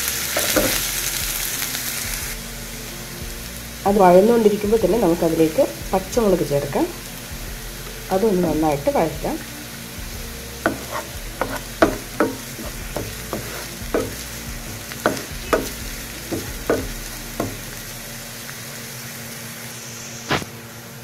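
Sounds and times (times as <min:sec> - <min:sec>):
food sizzling in hot oil: 0:00.0 - 0:21.0
spatula scraping a pan: 0:10.6 - 0:17.8.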